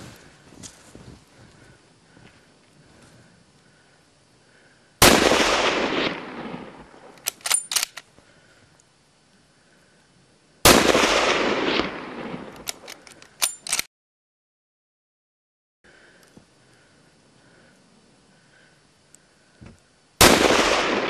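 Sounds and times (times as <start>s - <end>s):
rifle shots echoing: 5.0s - 8.0s, 10.6s - 13.8s, 20.2s - 21.0s
sharp metallic clicks: 7.1s - 8.1s, 12.5s - 13.9s.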